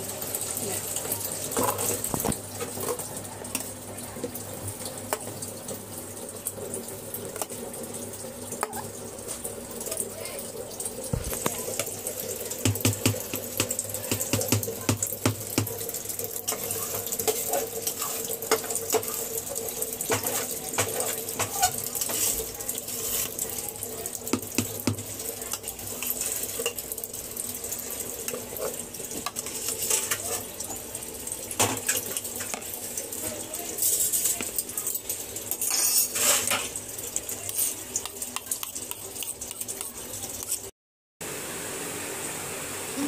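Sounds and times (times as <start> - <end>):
metal utensils clinking on a pot: 20.0 - 23.5, 25.4 - 26.9, 28.2 - 30.8, 31.6 - 36.8, 37.4 - 40.6.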